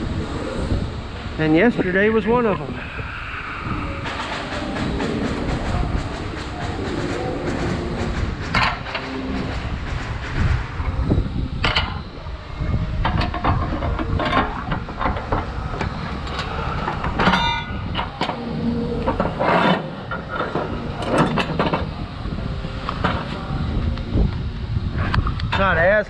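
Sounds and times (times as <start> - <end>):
heavy vehicle rumbling: 2.5 - 25.6
metallic clanks and rattles: 4.0 - 11.0, 13.0 - 22.0.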